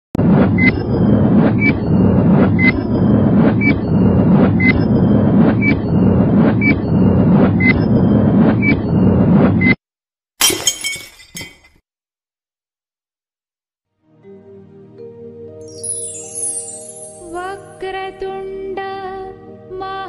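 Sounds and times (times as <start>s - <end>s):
dense low noise: 0.2s - 9.5s.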